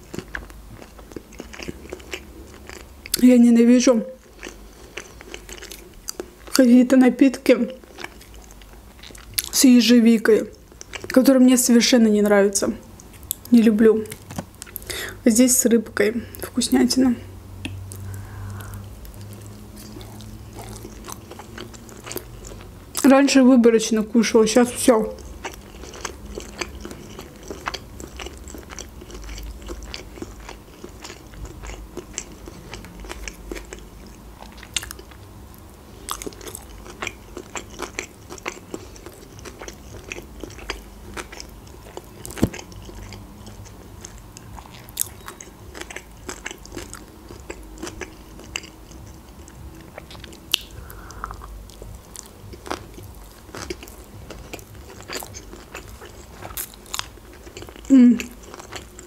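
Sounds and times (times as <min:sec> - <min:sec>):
chewing with soft crunches: 0:00.0 - 0:03.2, 0:04.1 - 0:06.6, 0:07.8 - 0:09.6, 0:10.5 - 0:11.2, 0:17.6 - 0:23.1, 0:25.1 - 0:59.0
wet mouth clicks and smacks: 0:50.0 - 0:51.5.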